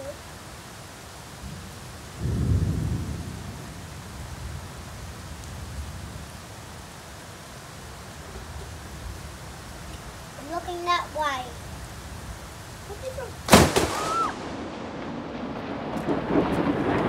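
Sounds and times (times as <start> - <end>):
rain hissing: 0.0 - 17.0
thunder rumbling: 1.4 - 6.9, 10.7 - 17.0.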